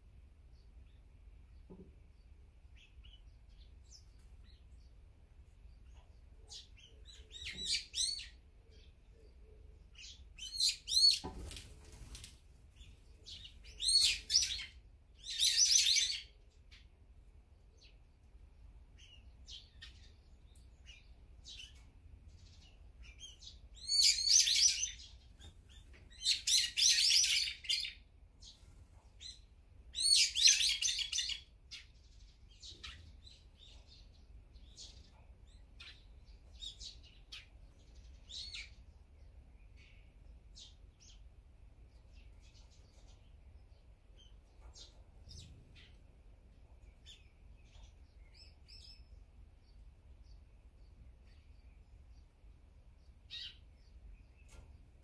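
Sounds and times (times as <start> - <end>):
faint bird chirps: 0.5 - 16.9, 17.5 - 41.3, 41.9 - 55.0.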